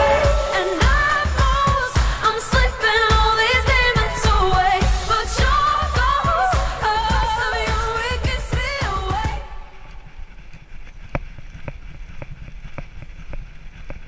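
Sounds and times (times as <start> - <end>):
pop song with vocals: 0.0 - 10.1.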